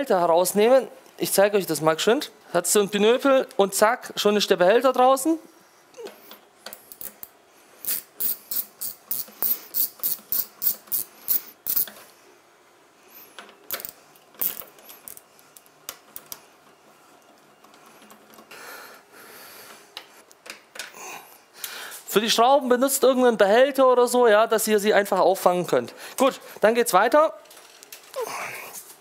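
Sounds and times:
hand ratchet clicking: 6.8s - 12.0s.

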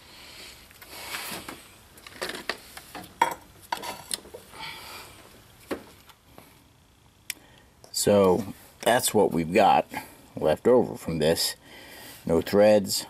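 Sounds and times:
metal tools clinking and scraping: 2.0s - 4.4s.

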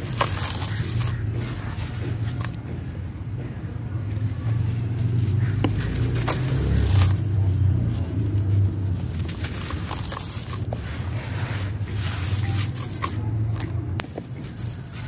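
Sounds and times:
gritty sand crumbling in water: 0.0s - 2.6s, 8.8s - 13.7s.

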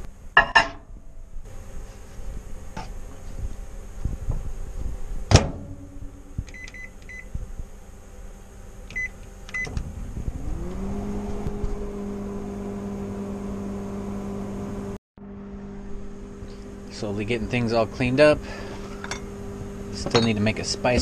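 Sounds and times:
microwave humming: 0.0s - 21.0s
microwave door clunk: 5.3s - 5.8s.

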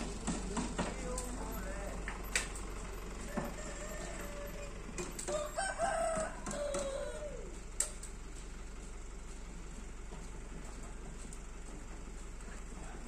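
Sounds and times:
sharp clicks: 2.0s - 2.7s, 7.8s - 8.2s
rooster crowing: 3.2s - 7.6s.

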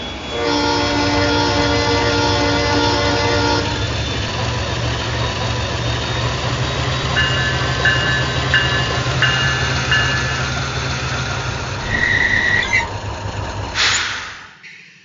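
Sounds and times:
locomotive air horn: 0.3s - 3.9s
diesel engine rumbling: 2.1s - 14.3s
locomotive bell ringing: 5.4s - 11.2s.

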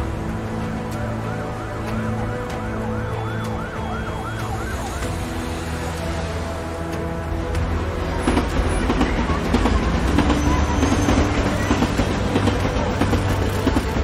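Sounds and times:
low rumble of city traffic: 0.0s - 14.0s
tram wheels clattering on rails: 6.8s - 14.0s.

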